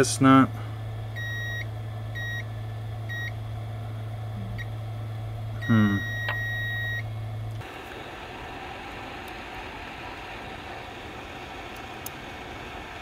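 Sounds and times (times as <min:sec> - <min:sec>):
steady low hum: 0:00.0 - 0:13.0
multimeter beeping: 0:01.2 - 0:01.6, 0:02.2 - 0:02.4, 0:05.6 - 0:07.0
short vocal sound: 0:04.4 - 0:04.6.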